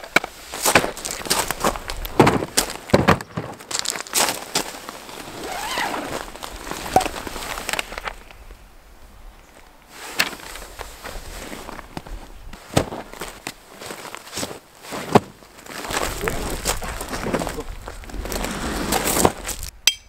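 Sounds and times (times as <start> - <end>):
crunching on gravel: 0.0 - 8.4, 9.9 - 19.8
rustling of fabric and paper: 0.3 - 8.3, 9.9 - 19.7.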